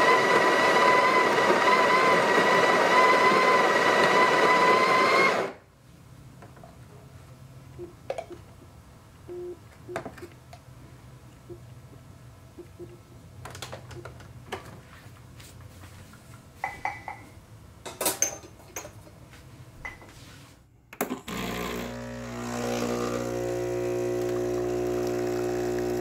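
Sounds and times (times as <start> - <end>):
portafilter and glass cups clinking: 16.6 - 19.0
espresso machine pump humming: 21.3 - 26.0.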